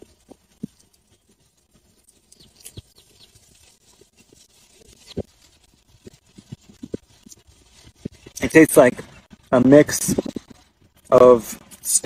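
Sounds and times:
wet chewing: 0.0 - 8.4.

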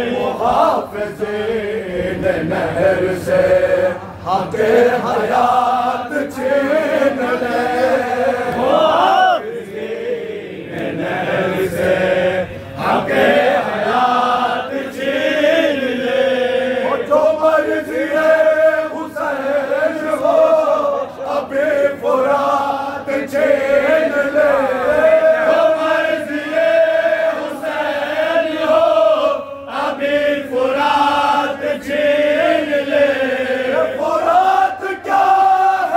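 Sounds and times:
lead voice singing: 0.0 - 35.9
men chanting a lament: 0.0 - 35.9.

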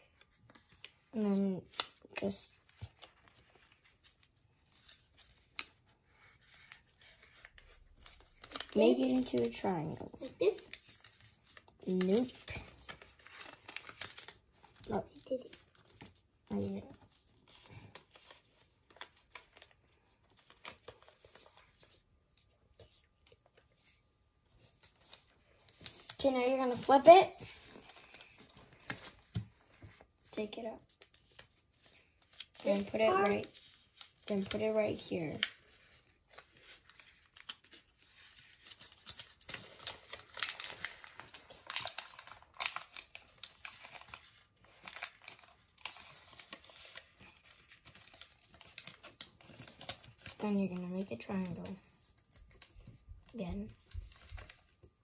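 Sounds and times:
paper rustling and crinkling: 0.0 - 55.0
soft paper crackles: 0.0 - 55.0.

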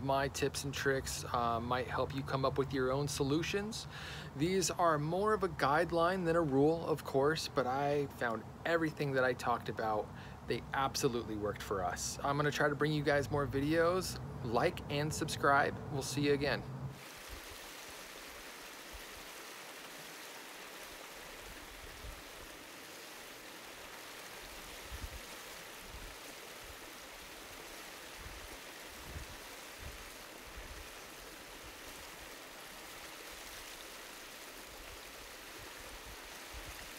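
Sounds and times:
stream rushing over rocks: 16.9 - 36.9.

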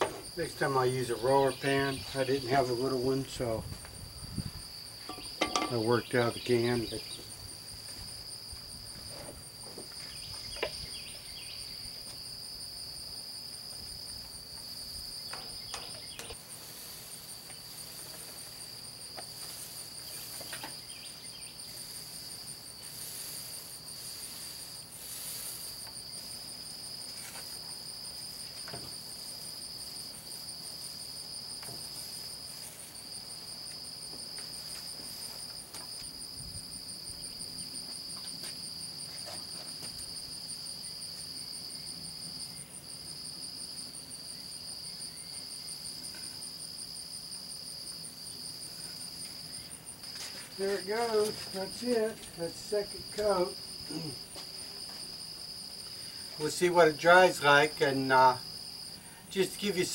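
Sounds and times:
insect trilling: 0.0 - 59.9
rapidly pulsing insect buzz: 0.0 - 59.9
faint taps and brushing: 19.2 - 20.8, 50.0 - 52.4.

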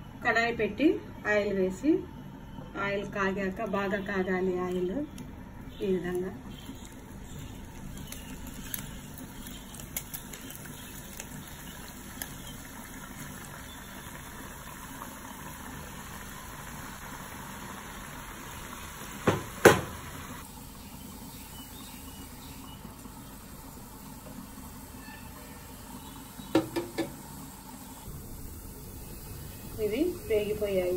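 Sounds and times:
dough frying in hot oil: 2.8 - 30.9
sharp knocks: 19.2 - 19.9.

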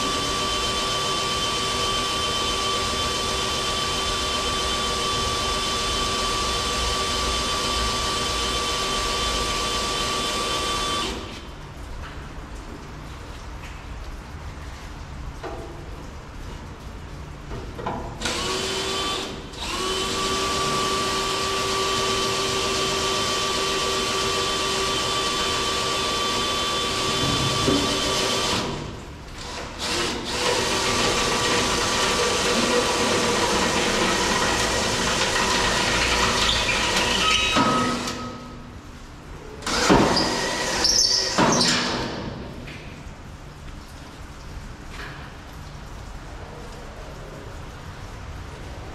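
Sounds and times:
cordless drill boring into metal: 0.0 - 11.2, 18.2 - 28.8, 29.5 - 38.2, 39.6 - 42.1.

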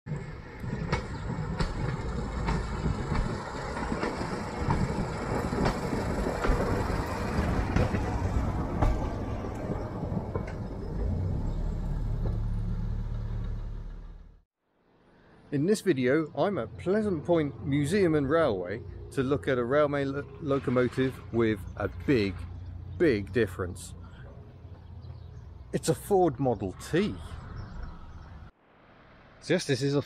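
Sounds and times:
running gear clicking on rails: 0.1 - 11.2
rail car engine rumble: 0.1 - 14.4, 15.8 - 28.5.

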